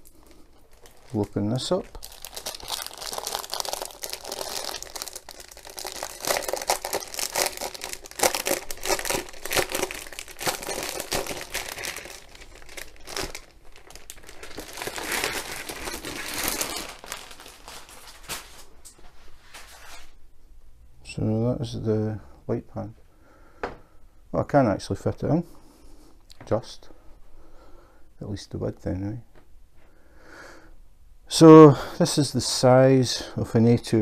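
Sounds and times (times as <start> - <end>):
plastic wrapping crinkling: 0.0 - 20.1.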